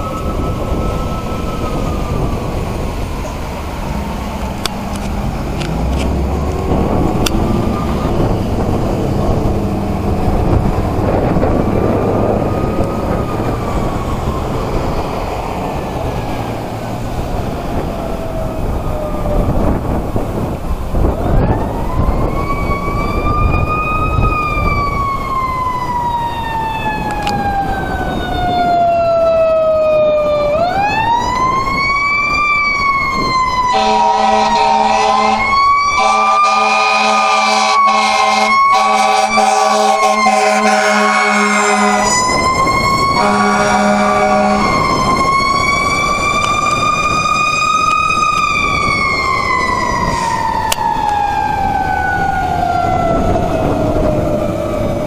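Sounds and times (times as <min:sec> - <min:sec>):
fire engine siren wailing: 0:00.0 - 0:55.0
horn blasts: 0:33.7 - 0:42.3, 0:43.2 - 0:44.9.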